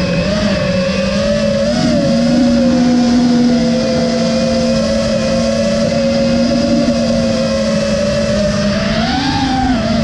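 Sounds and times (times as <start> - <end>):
drone motors whining: 0.0 - 10.0
steady rushing noise: 0.0 - 10.0.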